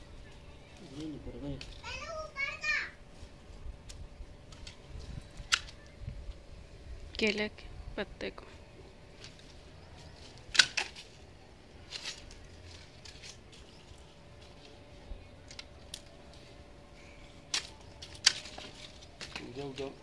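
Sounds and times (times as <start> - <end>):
faint steady hum: 0.0 - 20.0
pruning shears snipping stems: 17.5 - 20.0.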